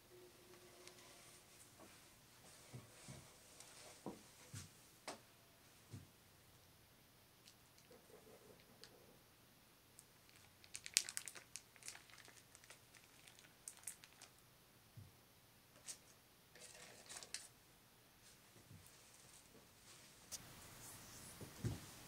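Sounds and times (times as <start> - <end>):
wrapping crinkling and clicking: 10.3 - 14.4.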